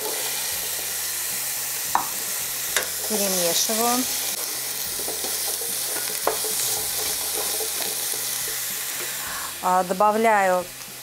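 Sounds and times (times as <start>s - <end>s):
apples sizzling in caramel: 0.0s - 11.0s
wooden spatula scraping and knocking: 4.9s - 9.2s.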